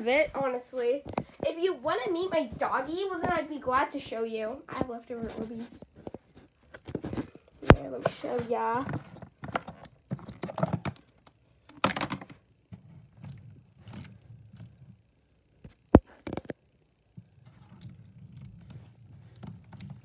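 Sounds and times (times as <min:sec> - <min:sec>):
fingers stirring wet gel beads: 0:17.2 - 0:20.0.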